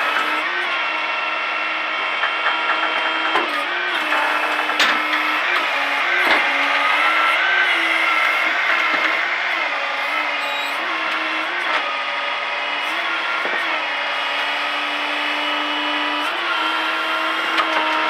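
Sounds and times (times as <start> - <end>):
hydraulic winch whining: 0.0 - 18.0.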